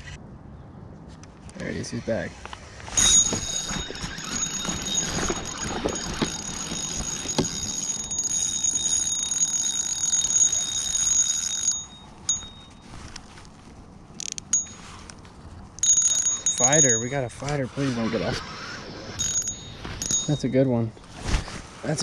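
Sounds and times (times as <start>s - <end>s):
fishing reel whining: 3.0s - 11.9s, 15.8s - 17.2s, 17.9s - 20.4s.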